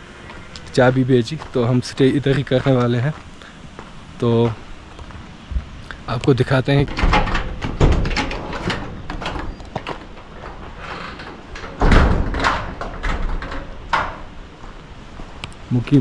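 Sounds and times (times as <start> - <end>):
knocks clicks and thumps: 5.6 - 14.8
heavy thud: 6.8 - 13.2.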